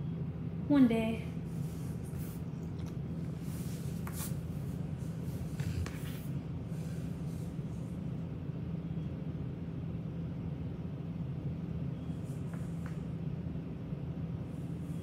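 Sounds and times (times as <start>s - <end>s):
steady low hum: 0.0s - 15.0s
brush scratching through dog fur: 1.5s - 6.4s.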